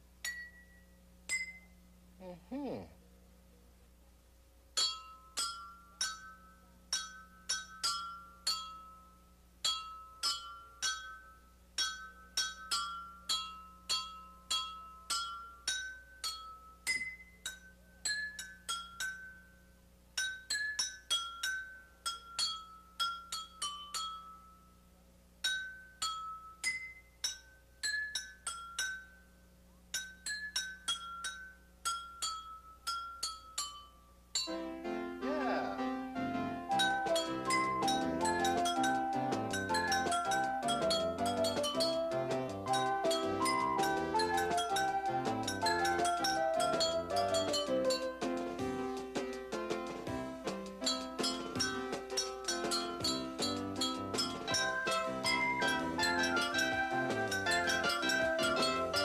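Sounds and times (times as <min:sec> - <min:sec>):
melody on tuned drinking glasses: 0:00.2 - 0:02.0, 0:04.8 - 0:48.6, 0:50.4 - 0:59.0.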